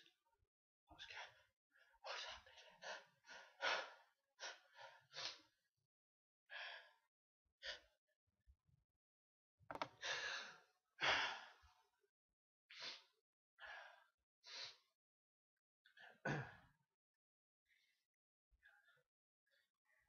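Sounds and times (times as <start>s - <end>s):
person gasping breaths: 10.0s - 11.6s.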